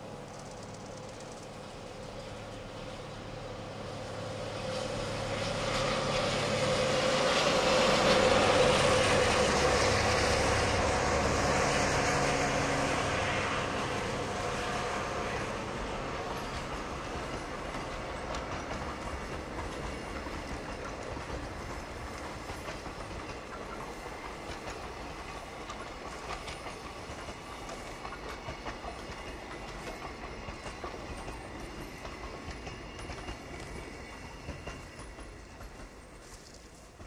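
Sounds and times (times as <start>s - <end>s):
wheels clicking over rail joints: 0.0s - 1.7s, 15.2s - 37.0s
freight train rolling past: 0.0s - 37.0s.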